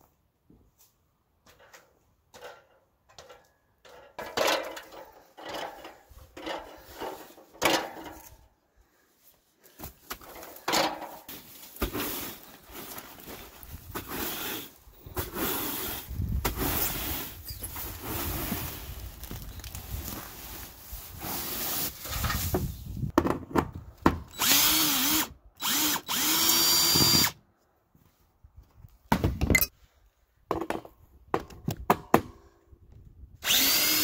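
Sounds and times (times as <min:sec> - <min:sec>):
steady rustling with low rumble: 0:11.2 - 0:23.2.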